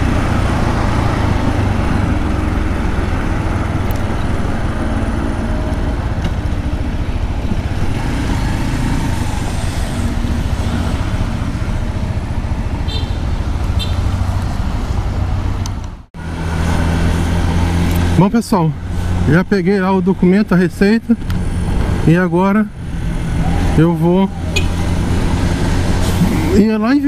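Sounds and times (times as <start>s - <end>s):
wind noise: 0.0s - 15.8s
road noise: 0.0s - 27.0s
motorcycle engine running: 1.6s - 14.4s.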